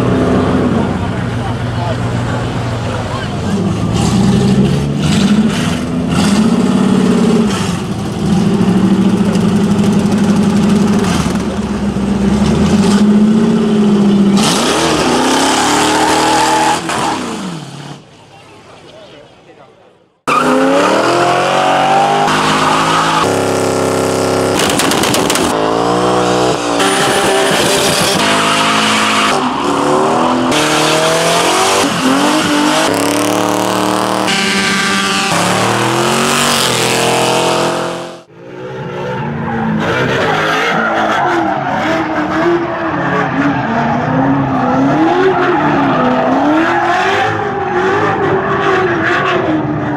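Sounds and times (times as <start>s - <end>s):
muscle car engines revving: 0.0s - 18.1s, 20.2s - 49.9s.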